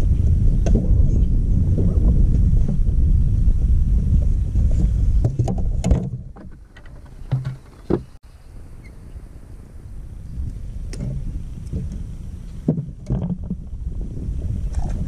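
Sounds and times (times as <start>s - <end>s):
wind buffeting microphone: 0.0s - 15.0s
knocks and clicks on boat deck: 4.8s - 8.2s, 12.6s - 13.6s.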